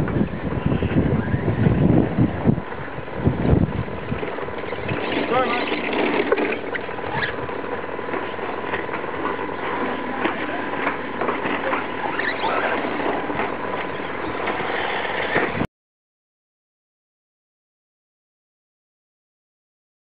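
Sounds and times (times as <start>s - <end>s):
tyres scrabbling over dirt: 4.1s - 15.6s.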